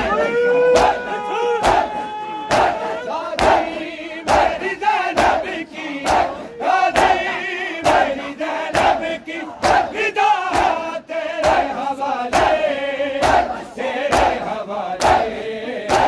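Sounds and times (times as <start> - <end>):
crowd chanting: 0.0 - 16.0
chest slapping in unison: 4.3 - 8.1, 8.7 - 10.8, 11.4 - 12.6, 13.2 - 15.3.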